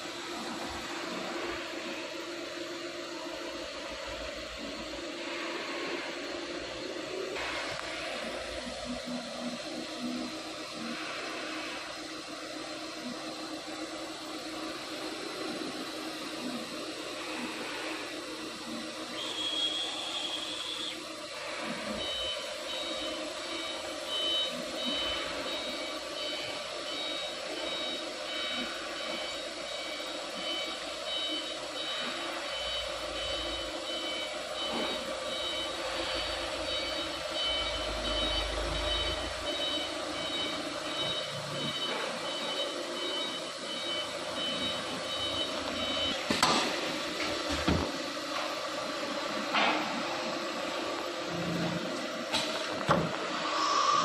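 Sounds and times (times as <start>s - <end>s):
machine hum: 0.0s - 54.0s
repeating high electronic beep: 22.0s - 46.2s.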